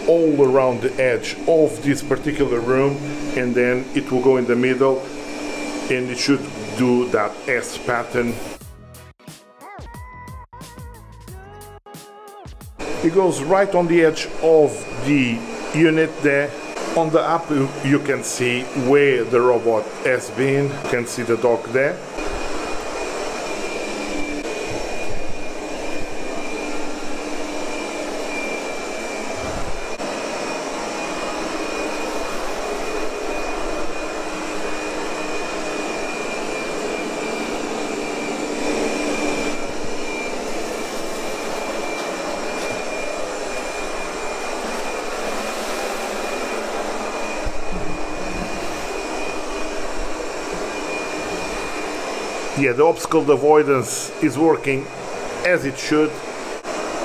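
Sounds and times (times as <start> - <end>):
robot vacuum whirring: 12.8 - 57.0.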